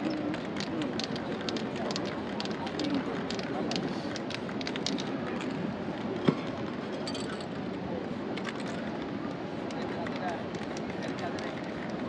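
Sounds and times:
busy street background: 0.0s - 12.0s
light clicks and clinks: 6.7s - 7.8s.

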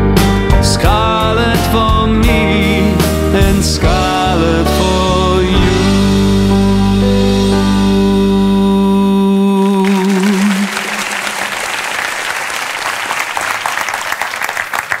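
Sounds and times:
backing music: 0.0s - 11.8s
man singing a held note: 8.0s - 11.2s
audience applause: 9.6s - 15.0s.

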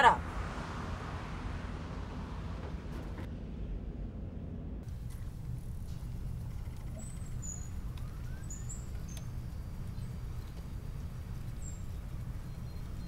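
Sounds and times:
control room hum: 3.0s - 13.0s
light clicks: 7.8s - 9.5s.

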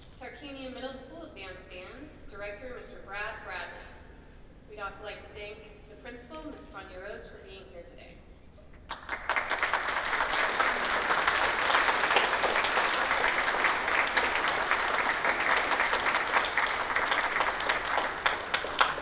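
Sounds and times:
audience applauding: 8.9s - 19.0s.

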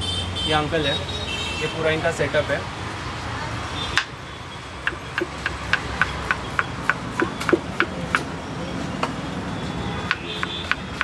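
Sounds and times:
knife chopping on wooden board: 4.9s - 8.3s, 10.1s - 11.0s.

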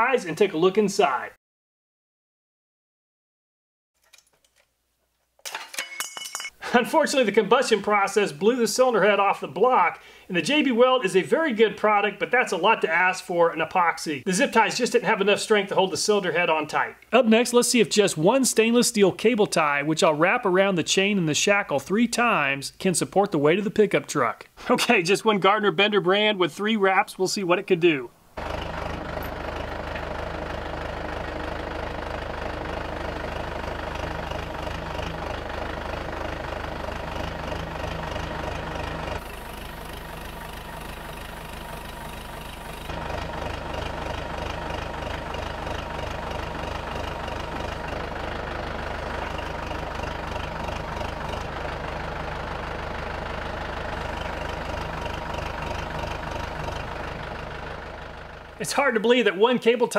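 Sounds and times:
loader engine running under load: 28.4s - 58.6s.

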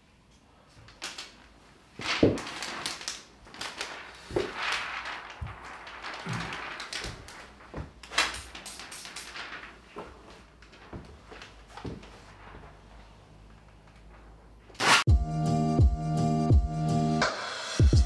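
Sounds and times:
plastic film crinkling: 0.8s - 15.0s.

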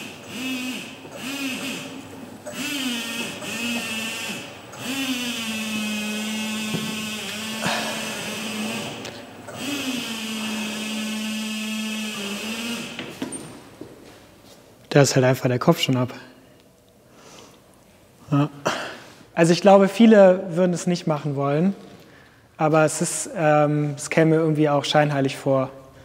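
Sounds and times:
electric forklift motor whining: 0.0s - 13.3s.

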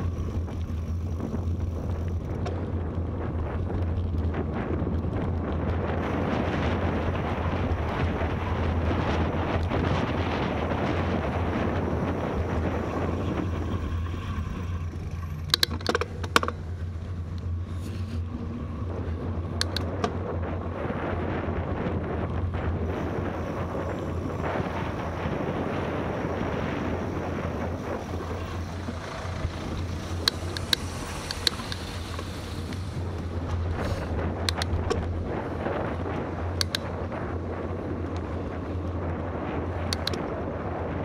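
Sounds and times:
bicycle road noise: 0.0s - 41.0s
wind rushing over microphone: 0.0s - 41.0s
sharp clicks: 15.1s - 16.6s, 19.5s - 20.2s, 29.8s - 32.8s, 34.4s - 35.1s, 36.6s - 37.0s, 39.8s - 40.3s.

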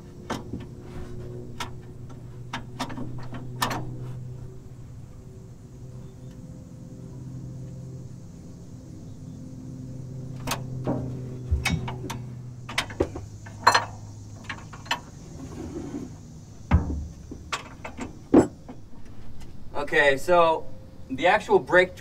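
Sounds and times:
steady low hum: 0.0s - 22.0s
metal clinks and knocks: 10.8s - 15.2s, 16.7s - 18.8s.

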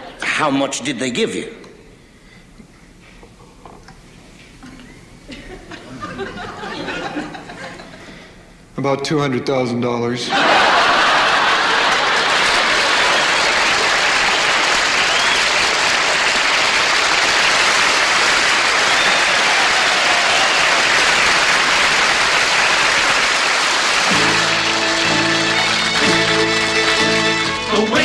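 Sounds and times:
audience applauding: 10.4s - 28.0s
country music with fiddle: 24.1s - 28.0s.

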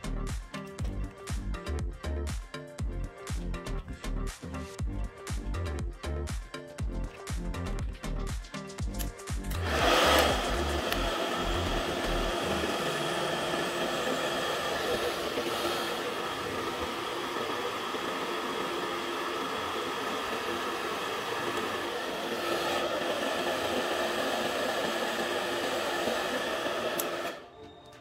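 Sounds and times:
hot-air blower whirring: 9.3s - 27.5s.

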